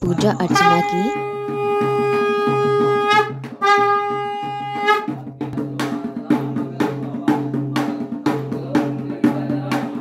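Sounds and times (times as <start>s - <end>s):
drums beating: 0.0s - 10.0s
conch shell blowing: 0.5s - 5.2s.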